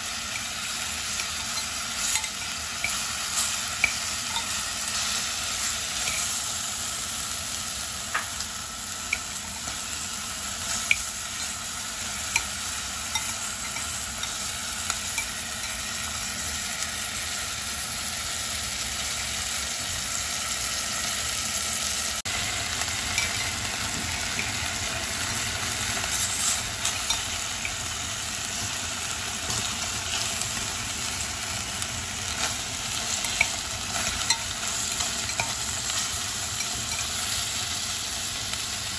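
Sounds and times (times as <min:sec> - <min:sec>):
meat sizzling in hot oil: 0:00.0 - 0:38.9.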